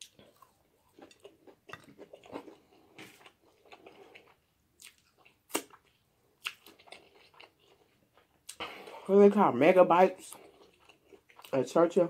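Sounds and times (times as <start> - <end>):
open-mouth chewing: 0.0 - 9.0, 10.2 - 11.6
lip smacking: 1.0 - 8.8.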